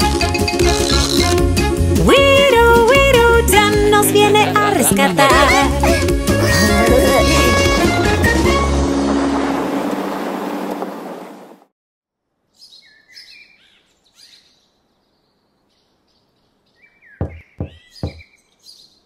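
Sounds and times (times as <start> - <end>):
music: 0.0 - 9.6
birds chirping: 12.5 - 19.0
knocking on garage door: 17.2 - 18.3.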